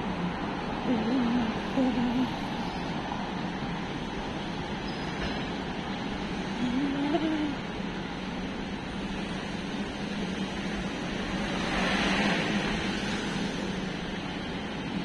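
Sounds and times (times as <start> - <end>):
cars passing on road: 0.0 - 15.0
loud vehicle passing: 11.4 - 13.6.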